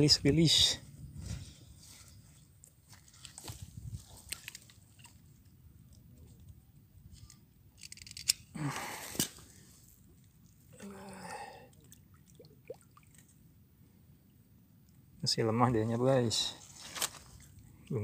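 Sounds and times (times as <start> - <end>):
dry leaves and stalks crackling: 2.8 - 5.3, 16.4 - 17.5.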